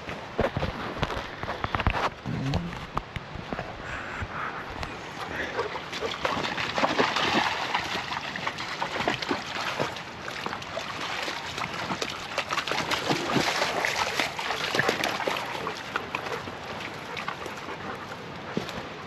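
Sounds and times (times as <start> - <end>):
river water splashing over rocks: 4.7 - 19.0.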